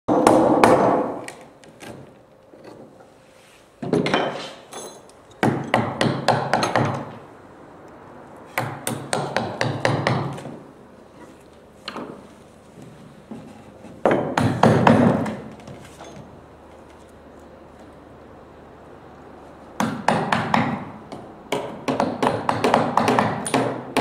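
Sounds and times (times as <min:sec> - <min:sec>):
hammer striking wooden boat: 0:19.8 - 0:24.0.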